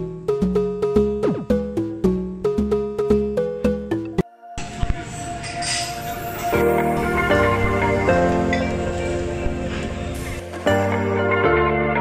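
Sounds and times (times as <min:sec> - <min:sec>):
short struck notes: 0:01.2 - 0:01.8.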